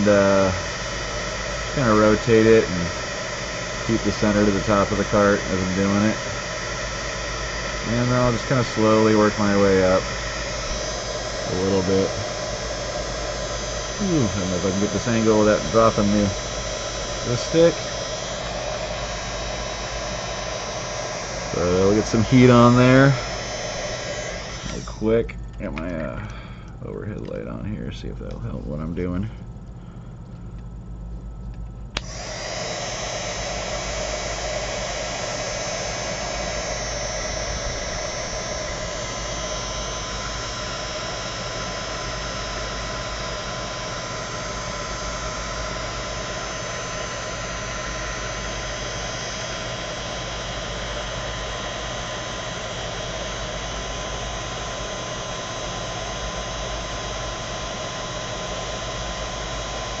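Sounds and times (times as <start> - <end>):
heat gun fan whine: 0.0 - 60.0
heat gun switch click: 23.8 - 27.4, 31.5 - 32.4.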